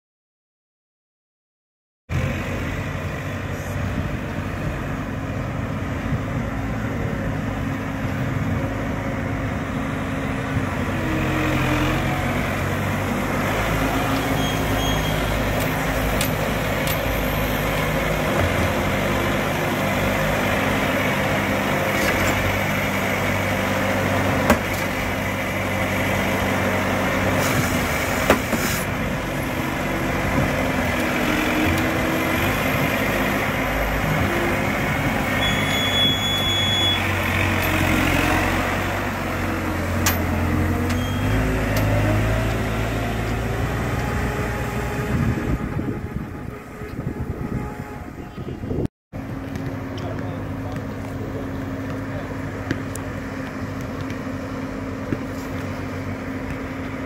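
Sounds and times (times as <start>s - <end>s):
truck engine running: 11.9s - 48.0s, 48.6s - 57.0s.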